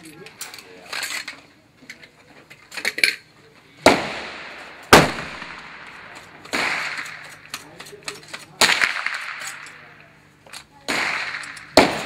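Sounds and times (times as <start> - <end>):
echoing gunshots: 3.8 - 7.5, 8.6 - 9.8, 10.8 - 12.0.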